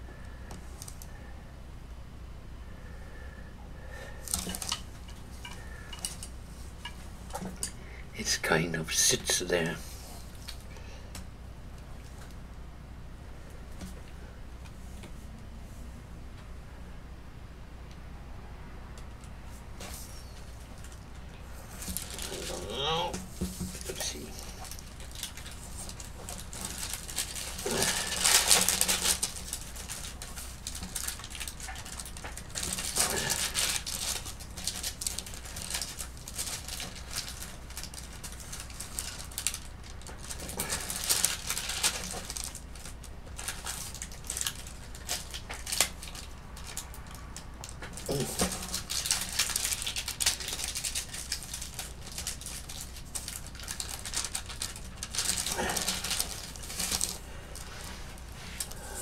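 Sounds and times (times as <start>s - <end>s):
steady low hum: 0.0s - 59.0s
paper rustling and scraping: 21.6s - 46.8s, 47.7s - 59.0s.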